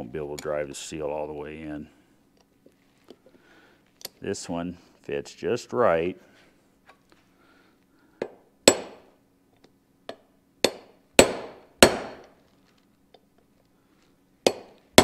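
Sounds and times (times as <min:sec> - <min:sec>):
hammer striking metal: 0:08.2 - 0:09.1, 0:10.6 - 0:12.3, 0:14.5 - 0:14.8.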